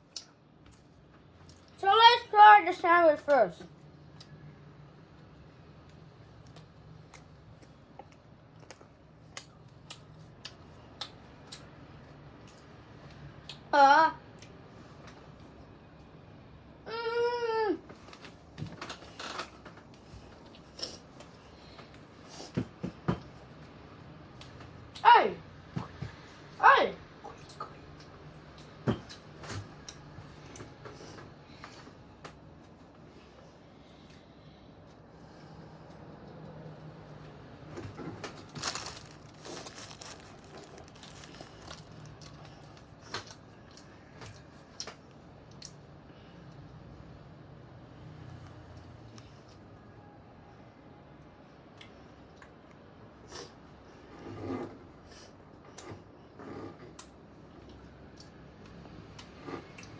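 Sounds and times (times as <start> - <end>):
child chewing: 6.4 - 11.8, 38.2 - 45.9
plastic bag crinkling: 38.2 - 42.9.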